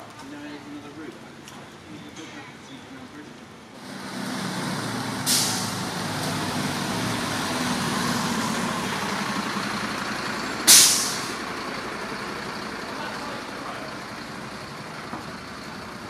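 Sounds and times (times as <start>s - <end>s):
diesel engine passing: 3.7s - 16.0s
air brake hisses: 5.2s - 5.8s, 10.6s - 11.4s.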